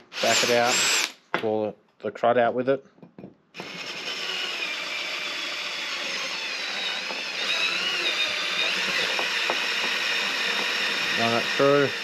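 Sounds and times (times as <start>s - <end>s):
drill motor whine: 0.0s - 1.1s, 3.6s - 12.0s.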